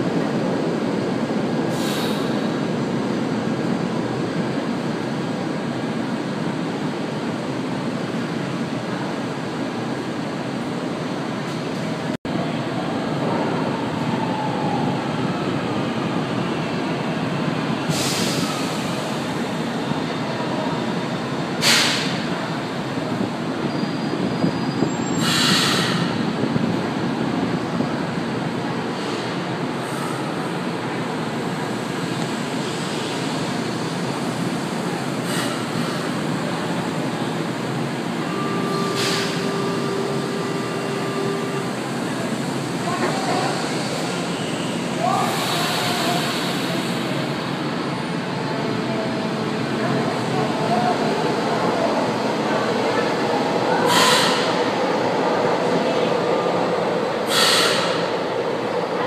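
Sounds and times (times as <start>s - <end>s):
train cars rumbling past: 0.0s - 59.0s
hiss bursts: 1.7s - 2.4s, 21.6s - 22.2s, 25.2s - 26.1s, 53.9s - 54.5s, 57.3s - 58.1s
air hisses: 53.9s - 54.5s, 57.3s - 58.0s.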